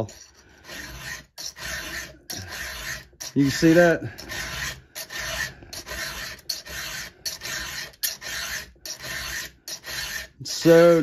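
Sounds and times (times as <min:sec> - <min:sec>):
file rasping on saw chain: 0:00.0 - 0:11.0.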